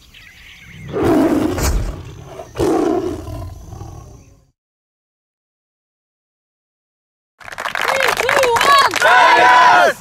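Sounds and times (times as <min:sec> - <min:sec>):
tiger roaring: 0:00.8 - 0:04.5.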